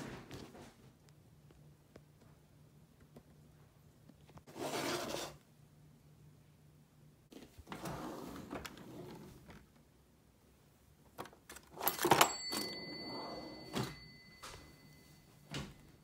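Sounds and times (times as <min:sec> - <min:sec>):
drawer sliding open: 0:04.5 - 0:05.4, 0:07.3 - 0:09.6
faint high ringing tone: 0:11.9 - 0:16.0.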